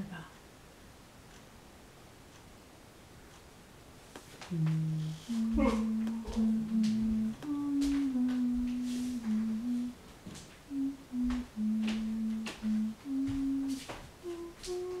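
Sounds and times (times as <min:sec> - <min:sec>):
person humming: 0:04.5 - 0:10.0, 0:10.6 - 0:15.0.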